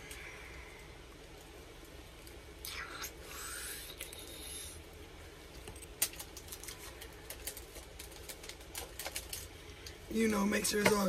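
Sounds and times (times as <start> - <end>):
small clicks and crackles: 0.0 - 3.1, 5.5 - 11.0
packaging rustling: 5.7 - 11.0.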